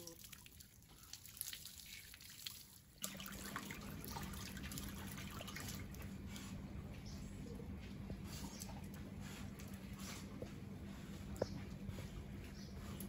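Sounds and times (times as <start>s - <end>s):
hose water pouring into tub: 0.0s - 6.0s
water dripping and splashing: 0.0s - 6.4s.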